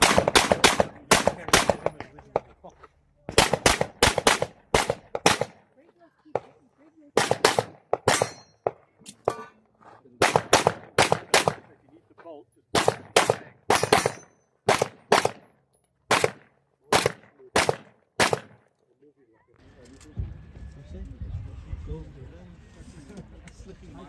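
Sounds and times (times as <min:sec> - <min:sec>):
handgun shots: 0:00.0 - 0:02.0, 0:03.3 - 0:05.6, 0:07.2 - 0:09.4, 0:10.2 - 0:11.6, 0:12.8 - 0:15.5, 0:16.1 - 0:18.6.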